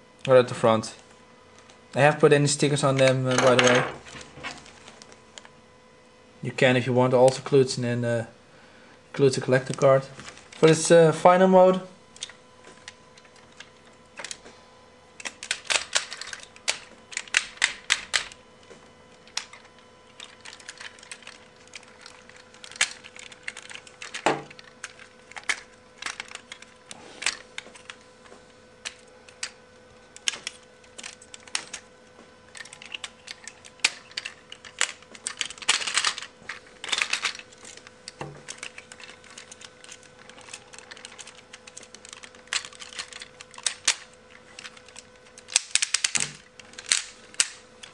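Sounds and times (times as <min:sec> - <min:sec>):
plastic toy parts clicking: 0:15.2 - 0:18.4, 0:19.2 - 0:28.0, 0:30.2 - 0:31.8, 0:32.5 - 0:47.9.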